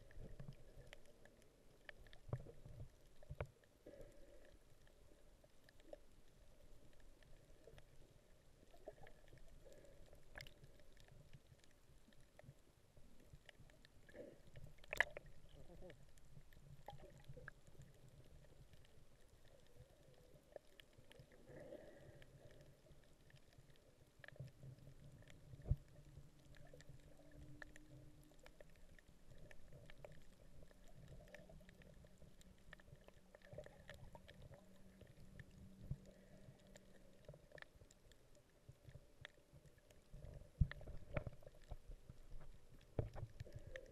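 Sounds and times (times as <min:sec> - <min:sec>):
muffled underwater rumble: 0:00.0 - 0:43.9
soft underwater clicks: 0:00.0 - 0:43.9.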